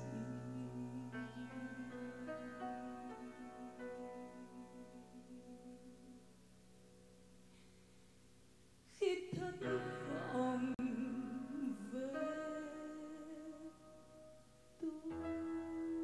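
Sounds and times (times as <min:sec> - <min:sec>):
woman singing: 0:00.0 - 0:06.2, 0:08.9 - 0:14.0, 0:14.8 - 0:16.0
grand piano: 0:00.0 - 0:16.0.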